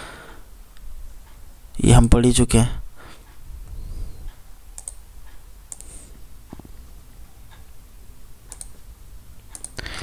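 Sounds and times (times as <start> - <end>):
faint low hum: 0.0 - 10.0
computer mouse clicking: 4.3 - 6.7, 8.4 - 8.9, 9.5 - 10.0.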